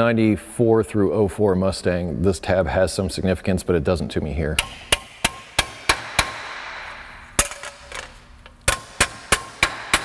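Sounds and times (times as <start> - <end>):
hammer striking metal: 4.6 - 8.0, 8.7 - 10.0.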